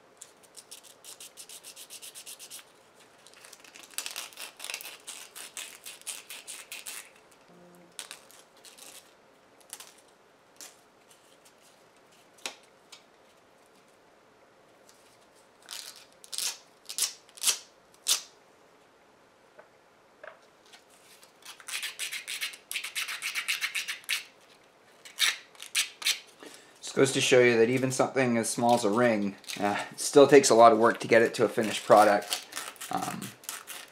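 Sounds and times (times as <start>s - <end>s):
sandpaper scratching plastic: 0.5s - 2.7s, 3.4s - 7.2s, 21.2s - 24.3s, 30.7s - 33.9s.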